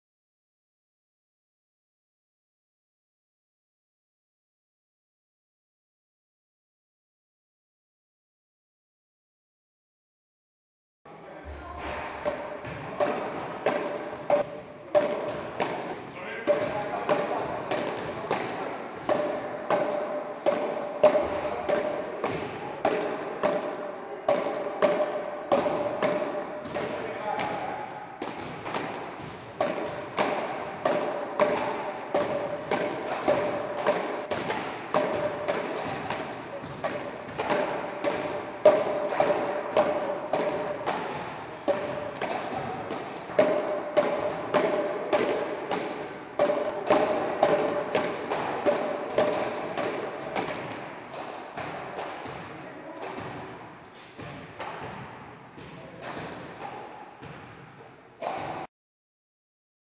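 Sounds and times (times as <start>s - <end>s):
ball hitting wooden paddles: 11.7s - 57.5s, 58.2s - 58.7s.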